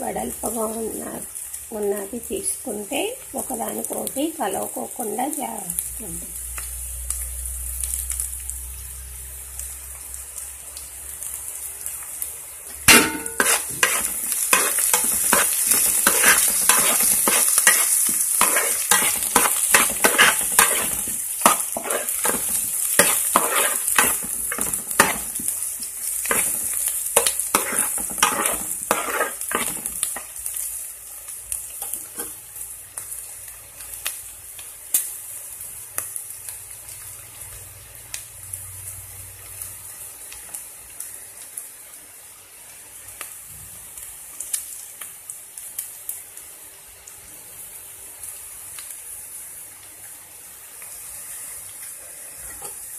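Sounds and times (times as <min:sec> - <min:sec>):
onions sizzling in hot oil: 0:00.0 - 0:52.9
utensil scraping metal pan: 0:12.9 - 0:25.2, 0:27.2 - 0:29.8.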